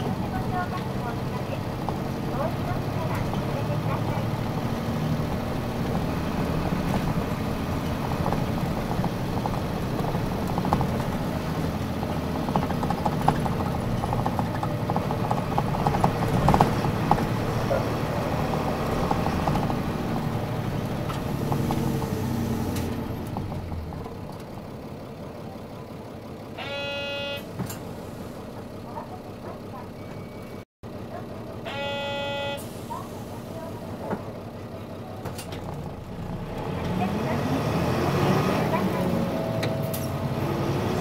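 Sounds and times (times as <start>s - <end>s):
bus body rattling: 0.0s - 26.5s, 32.7s - 37.2s
bus diesel engine running: 0.0s - 41.0s
short pitched tone: 26.6s - 27.5s, 31.7s - 32.8s.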